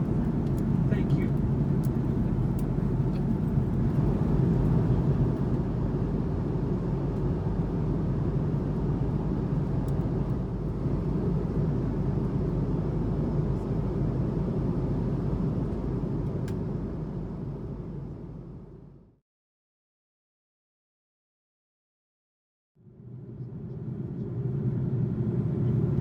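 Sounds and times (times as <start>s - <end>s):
airliner cabin engine drone: 0.0s - 19.1s, 22.8s - 26.0s.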